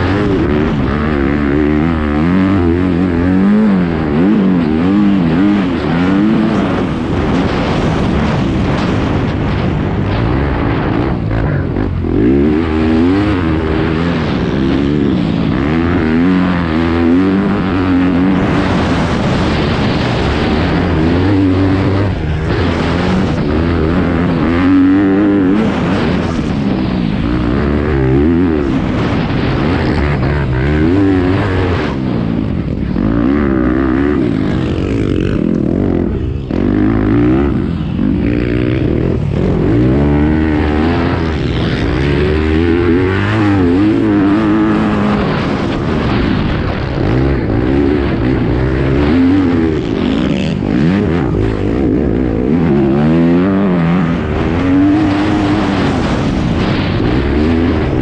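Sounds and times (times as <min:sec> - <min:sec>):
dirt bike engine revving: 0:00.0 - 0:58.0
wind rush: 0:00.0 - 0:58.0.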